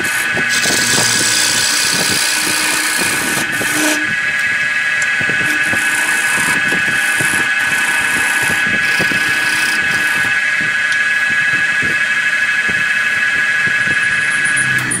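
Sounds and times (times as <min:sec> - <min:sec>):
gouge scraping wood: 0:00.0 - 0:04.2, 0:05.4 - 0:10.3
lathe whining: 0:00.0 - 0:15.0.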